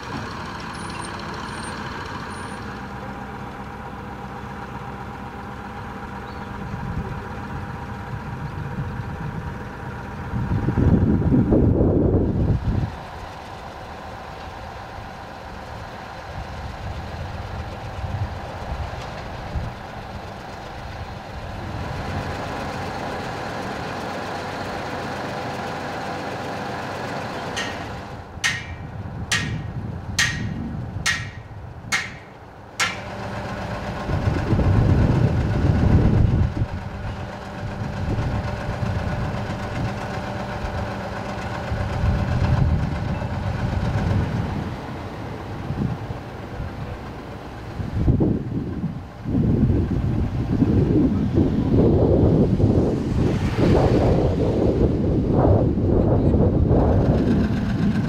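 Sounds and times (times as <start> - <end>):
low engine rumble: 0.0 - 58.0
truck engines idling: 0.0 - 58.0
sharp knocks: 27.6 - 33.2.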